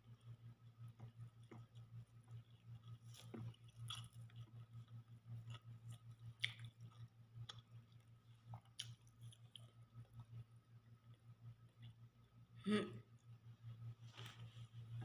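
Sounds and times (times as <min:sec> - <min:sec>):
chewing and mouth smacks: 0:00.0 - 0:10.5
steady low hum: 0:00.0 - 0:15.0.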